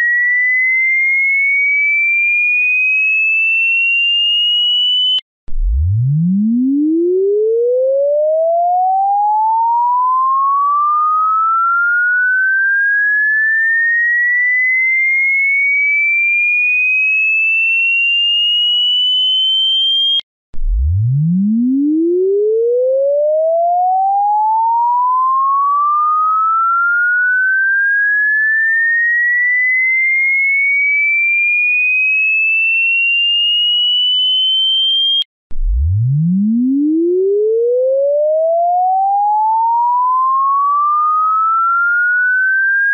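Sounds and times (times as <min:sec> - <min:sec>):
rising sine-wave sweep tone: 0:04.2 - 0:14.3, 0:18.2 - 0:30.0, 0:33.3 - 0:42.9.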